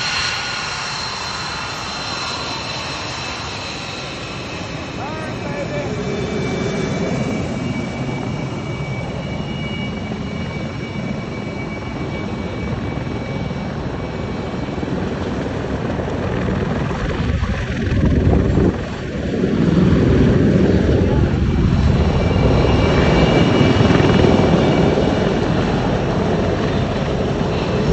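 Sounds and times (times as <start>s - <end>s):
high jet whine: 0.0s - 27.9s
jet engine roar: 0.0s - 27.9s.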